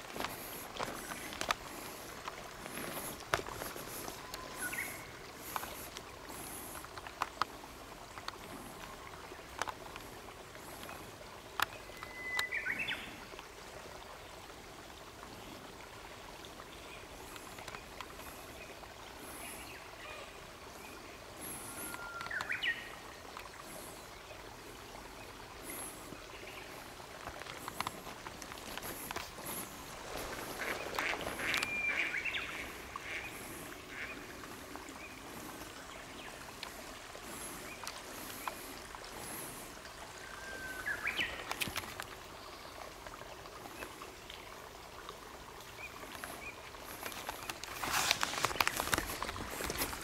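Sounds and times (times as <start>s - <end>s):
water trickling: 0.0s - 50.0s
warbling bird calls: 0.2s - 6.7s, 25.6s - 41.9s.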